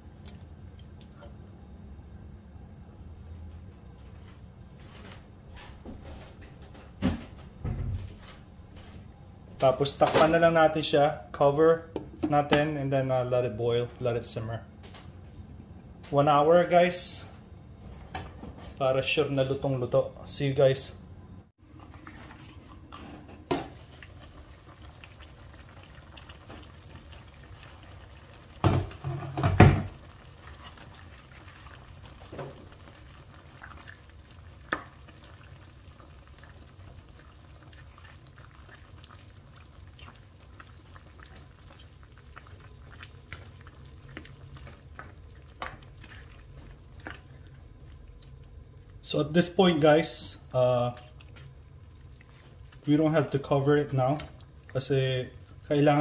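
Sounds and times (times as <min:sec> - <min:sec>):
food simmering in a pot: 0:21.4 - 0:56.0
knocks on a pot: 0:28.6 - 0:29.9.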